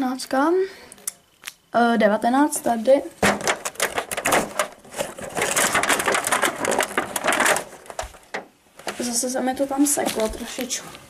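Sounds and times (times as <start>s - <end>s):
card crackling and rustling: 2.8s - 11.0s
cardboard tearing: 3.2s - 8.4s.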